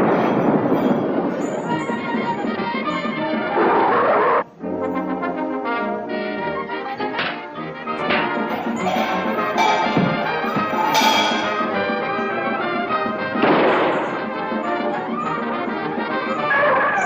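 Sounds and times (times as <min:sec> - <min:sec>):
background music: 0:00.0 - 0:17.0
short noisy crash: 0:13.3 - 0:14.5.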